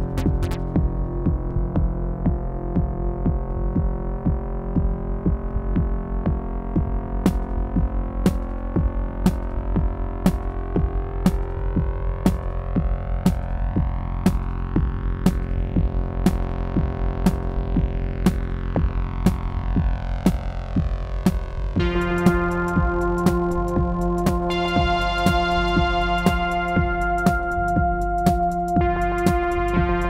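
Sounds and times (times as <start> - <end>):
electronic house music beat: 0.0 - 30.0
held synthesizer chords: 0.0 - 30.0
rising synth sweep: 21.8 - 30.0.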